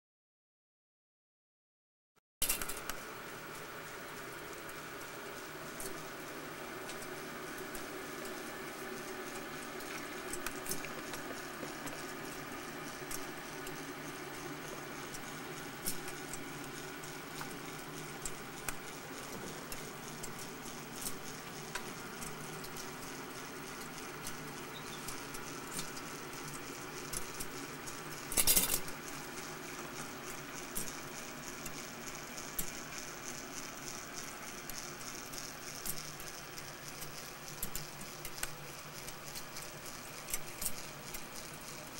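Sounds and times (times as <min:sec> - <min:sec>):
steady low hum: 0:02.4 - 0:41.9
kinetic clock clicks and rattles: 0:28.2 - 0:29.0.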